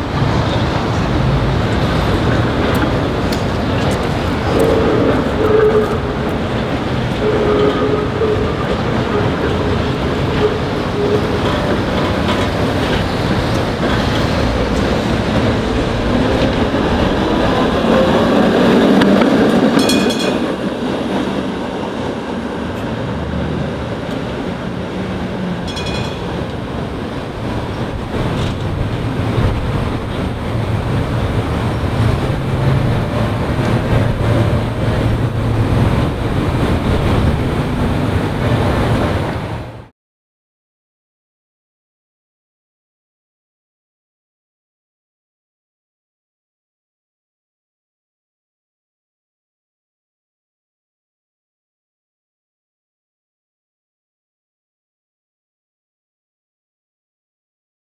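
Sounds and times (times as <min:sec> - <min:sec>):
city street noise: 0:00.0 - 0:39.9
streetcar wheels rumbling on rails: 0:00.0 - 0:39.9.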